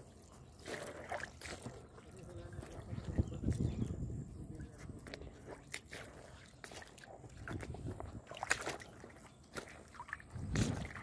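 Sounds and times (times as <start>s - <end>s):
small water splashes: 0.0s - 11.0s
stream running over pebbles: 0.0s - 11.0s.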